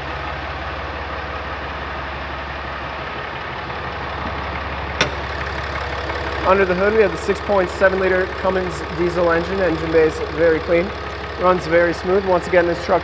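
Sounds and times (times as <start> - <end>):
diesel engine idling: 0.0 - 13.0
hood latch click: 5.0 - 6.1.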